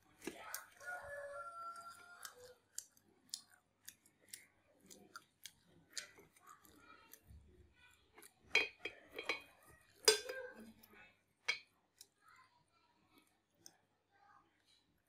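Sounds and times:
soft chewing: 0:00.0 - 0:15.0
chopsticks clicking on metal tray: 0:08.2 - 0:10.7.

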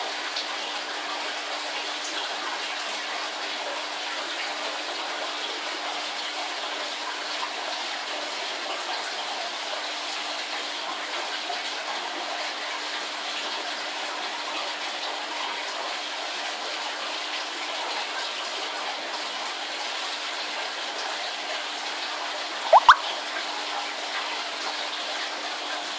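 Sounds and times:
bubbling running water: 0:22.7 - 0:23.0
rising chirps: 0:22.7 - 0:23.0.

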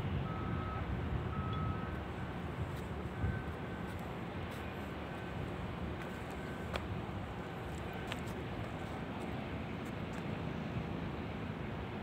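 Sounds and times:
distant traffic rumble: 0:00.0 - 0:12.0
reversing alarm beeping: 0:00.2 - 0:02.0, 0:03.1 - 0:03.9, 0:06.3 - 0:06.7.

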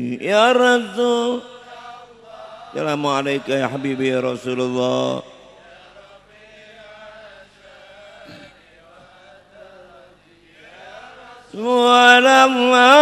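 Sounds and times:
man singing into a microphone: 0:00.0 - 0:01.6, 0:02.7 - 0:05.4, 0:11.5 - 0:13.0
men chanting: 0:00.8 - 0:13.0.

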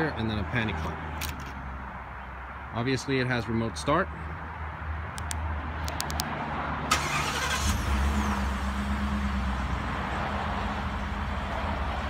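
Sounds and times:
engine cranking and idling: 0:06.9 - 0:09.0.

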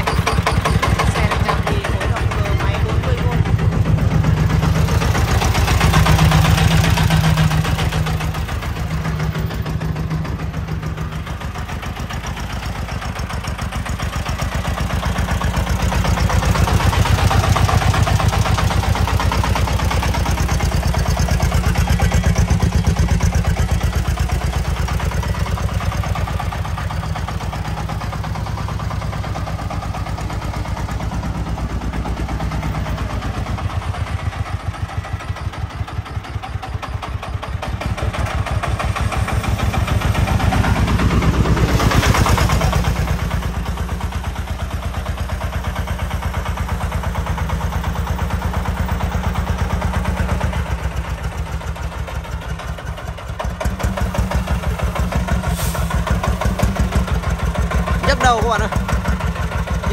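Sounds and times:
diesel truck engine chugging: 0:00.0 - 0:59.9.

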